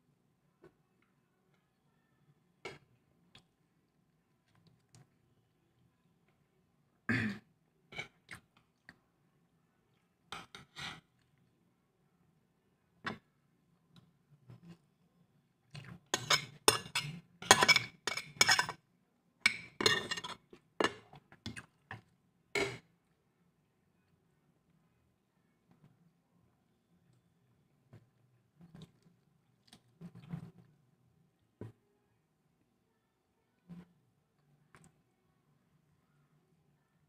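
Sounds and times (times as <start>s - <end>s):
spoon clinking on plate: 16.2s - 18.8s
chewing: 28.6s - 30.5s.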